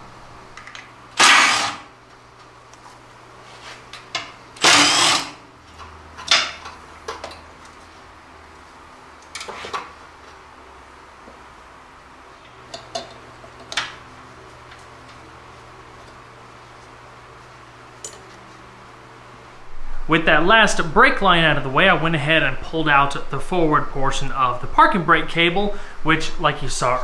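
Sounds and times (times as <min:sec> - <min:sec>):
cordless power tool bursts: 0:01.2 - 0:02.0, 0:04.6 - 0:05.4.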